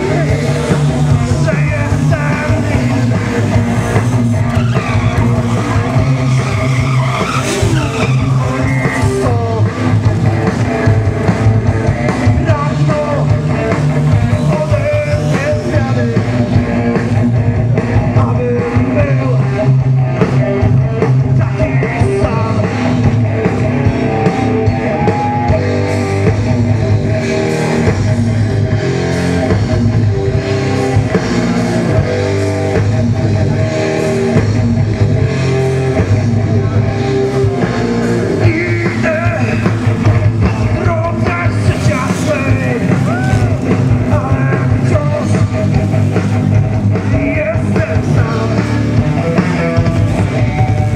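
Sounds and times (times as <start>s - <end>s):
person singing: 0.0s - 3.7s, 7.6s - 10.1s, 12.0s - 16.5s, 18.0s - 23.0s, 38.3s - 45.8s, 47.0s - 50.9s
electric guitar: 0.0s - 50.9s
hard rock music: 0.0s - 50.9s.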